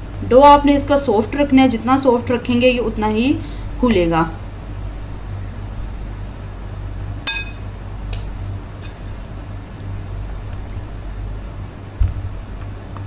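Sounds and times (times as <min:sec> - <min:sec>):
glass clinks: 0:07.3 - 0:07.6
low hum: 0:07.3 - 0:07.7.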